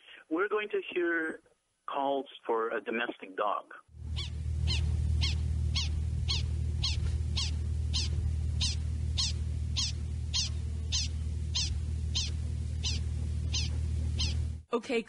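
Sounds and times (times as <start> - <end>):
steady low hum: 4.0 - 14.7
prairie dog high chirps: 4.2 - 14.4.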